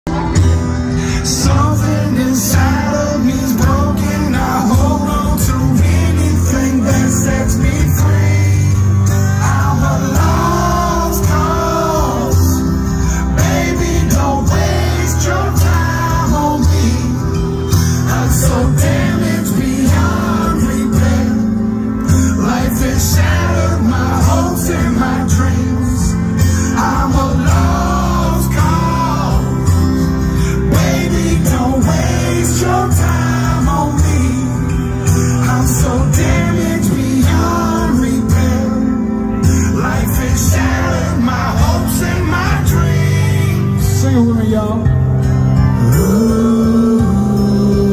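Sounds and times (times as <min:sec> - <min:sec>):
live band with guitar and bass: 0:00.0 - 0:47.9
man singing into microphone: 0:00.9 - 0:47.9.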